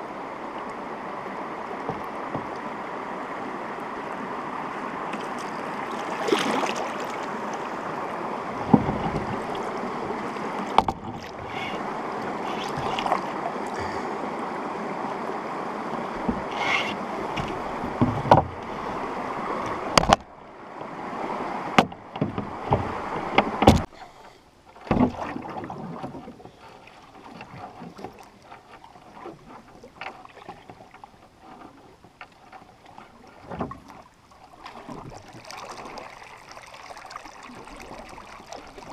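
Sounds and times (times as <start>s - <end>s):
water rushing over rocks: 0.0s - 23.9s, 34.6s - 38.9s
paddle strokes and drips: 0.0s - 38.9s
paddle knocking on hull: 1.8s - 2.6s, 8.5s - 11.7s, 15.8s - 20.3s, 21.6s - 23.9s, 24.8s - 38.9s.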